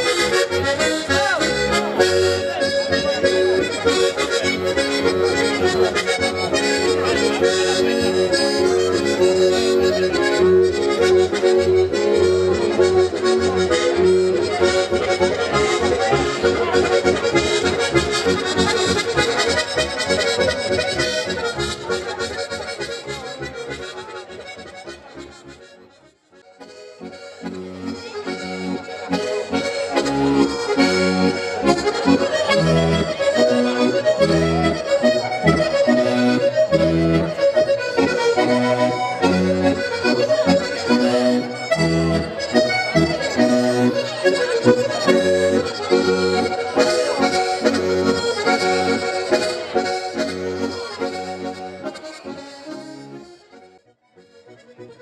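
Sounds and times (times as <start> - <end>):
accordion playing a tune: 0.0 - 55.0.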